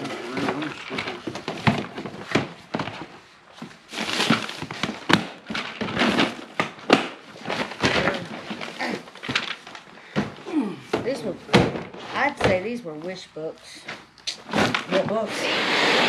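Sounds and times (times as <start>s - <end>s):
plastic bag rustling: 0.0s - 10.2s
plastic cases knocking and clacking: 0.0s - 12.8s.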